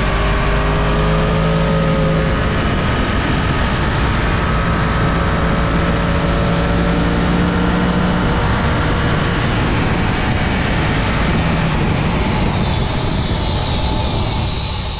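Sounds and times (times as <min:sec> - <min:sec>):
motorcycle engine running: 0:00.0 - 0:14.6
wind and road noise: 0:00.0 - 0:14.9.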